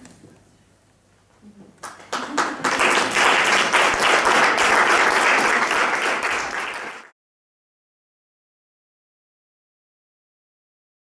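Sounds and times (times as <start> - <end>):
audience applauding: 1.8 - 7.1.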